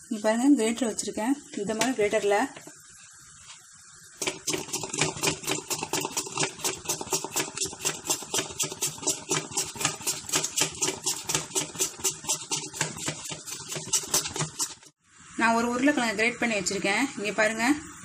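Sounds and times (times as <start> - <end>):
potato slicer shaving slices: 4.2 - 14.9.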